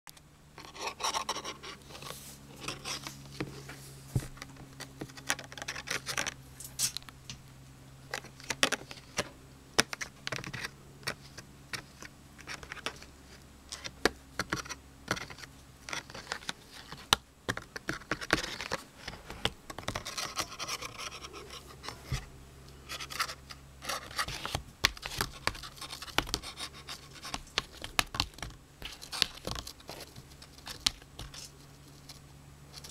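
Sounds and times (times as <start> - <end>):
faint low hum: 0.1 - 32.9
plastic ruler scratching and clicking: 13.7 - 22.2.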